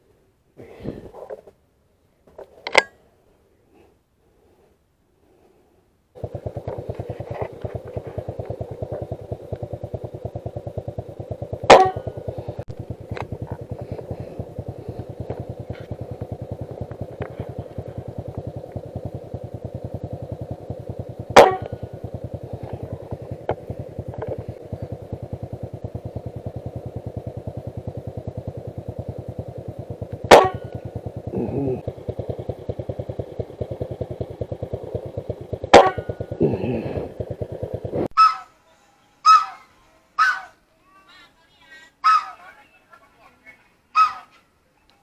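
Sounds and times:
fast steady pulsing: 6.1 - 38.3
rifle shots: 11.6 - 12.2, 21.3 - 21.8.

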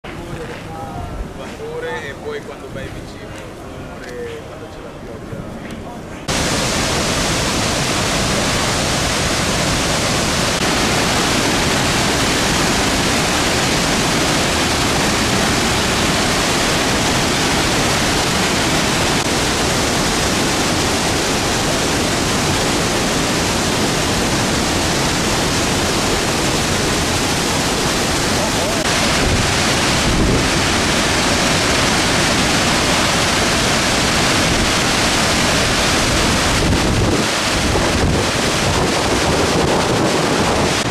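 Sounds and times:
waterfall roaring: 6.0 - 40.9.

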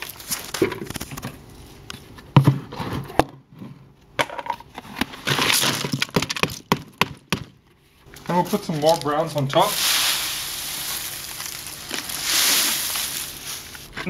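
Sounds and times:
scraps clattering into plastic bin: 8.3 - 14.0.

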